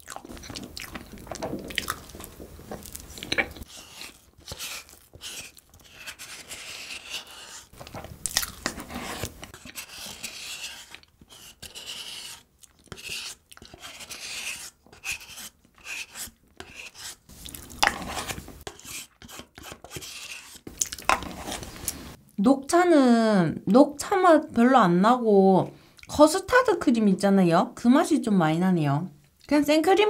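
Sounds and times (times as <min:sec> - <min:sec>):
wet chewing and lip-smacking: 0:00.0 - 0:03.7, 0:20.7 - 0:21.1
wooden spoon scraping paper cup: 0:01.0 - 0:22.2.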